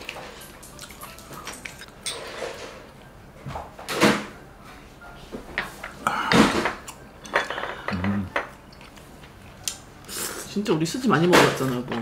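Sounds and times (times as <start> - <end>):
plates and glasses clattering: 0.2 - 2.9, 5.6 - 8.5.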